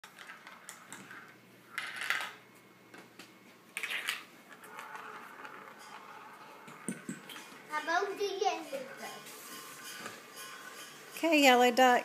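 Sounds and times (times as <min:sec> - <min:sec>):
marbles clattering on plastic: 0:00.0 - 0:02.4, 0:03.8 - 0:07.5.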